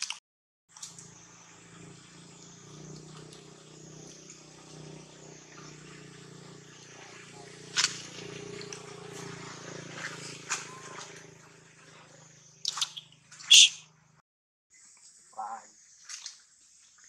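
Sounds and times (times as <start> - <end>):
low motor hum: 0.8 - 14.2
outdoor background hiss: 14.7 - 17.0.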